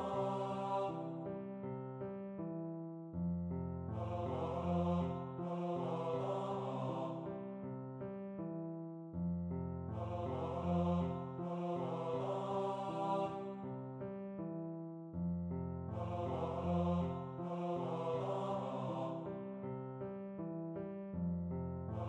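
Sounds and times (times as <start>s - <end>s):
synthetic choir voice melody: 0.0s - 1.6s, 3.9s - 7.7s, 9.9s - 13.8s, 15.9s - 19.6s
piano arpeggios: 1.0s - 5.4s, 7.2s - 11.4s, 19.2s - 22.0s.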